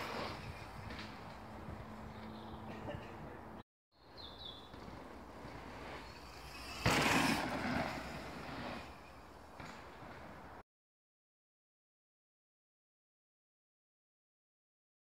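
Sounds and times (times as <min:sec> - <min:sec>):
bike tyres crunching on dirt: 0:00.0 - 0:02.5, 0:04.1 - 0:10.6
bird chirping: 0:04.0 - 0:04.8.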